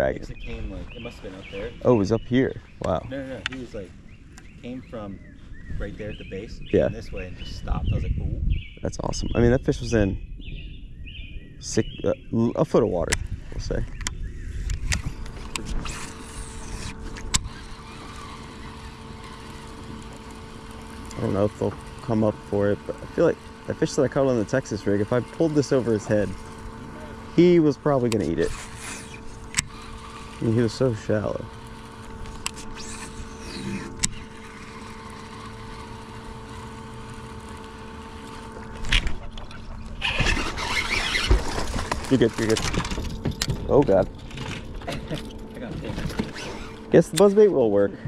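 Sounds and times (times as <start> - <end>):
short whirr: 0.0 - 8.2, 13.1 - 48.0
electric motor humming: 0.0 - 48.0
sharp click: 2.8 - 4.5.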